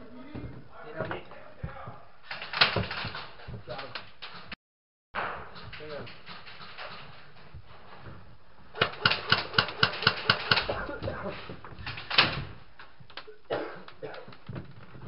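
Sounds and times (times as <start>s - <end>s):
airsoft gun shots: 8.8s - 10.8s.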